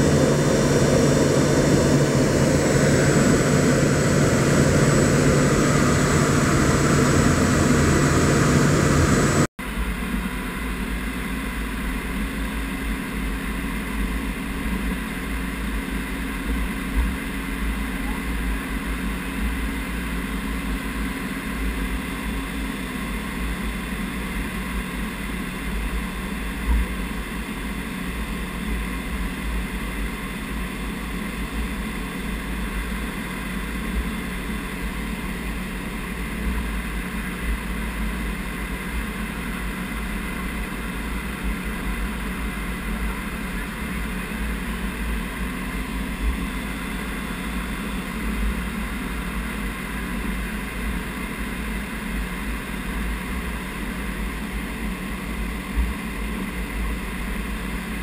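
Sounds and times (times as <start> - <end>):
aircraft engine rumble: 0.0 - 9.5
airflow noise: 0.0 - 9.5
humming tones: 0.0 - 9.5.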